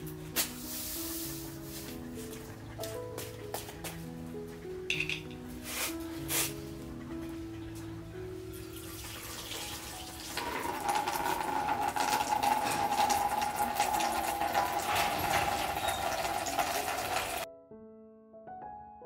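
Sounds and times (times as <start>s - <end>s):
water splashing: 8.4s - 17.5s
water pouring into a basin: 8.5s - 17.5s.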